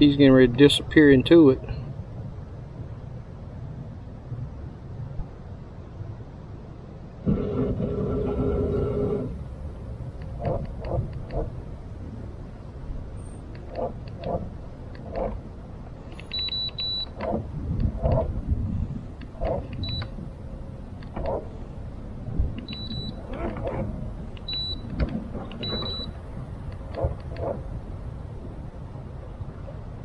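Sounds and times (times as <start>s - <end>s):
wind rumbling: 0.0s - 30.0s
small clicks: 16.0s - 18.3s, 22.6s - 27.6s.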